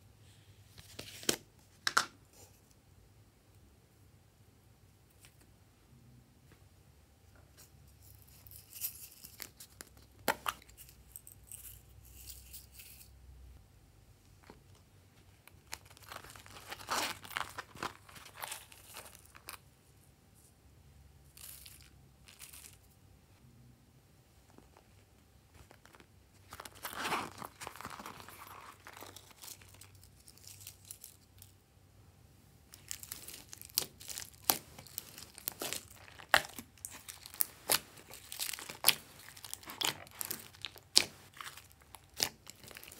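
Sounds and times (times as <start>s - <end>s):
sequins rustling and clicking: 7.5s - 13.2s, 21.3s - 23.0s, 24.5s - 31.6s, 32.7s - 42.9s.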